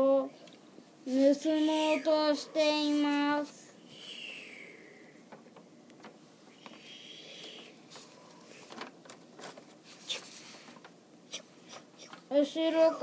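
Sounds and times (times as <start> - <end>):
soft hiss: 0.0 - 13.0.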